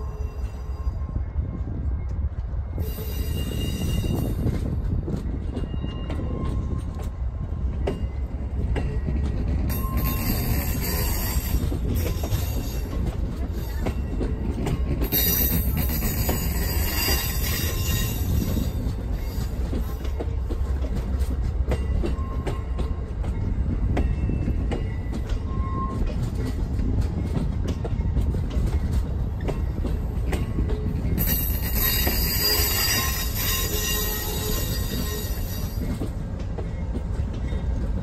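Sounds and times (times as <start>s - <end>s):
train rumbling on track: 0.0s - 38.0s.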